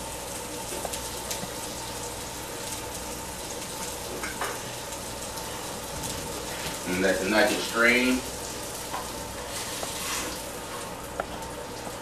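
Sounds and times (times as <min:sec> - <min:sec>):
oil crackles: 0:00.0 - 0:12.0
oil sizzling in a frying pan: 0:00.0 - 0:12.0.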